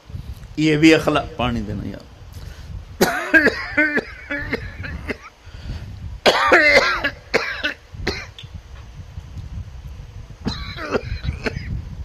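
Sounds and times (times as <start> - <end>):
man coughing: 3.0 - 5.3, 6.2 - 8.3, 10.5 - 11.7.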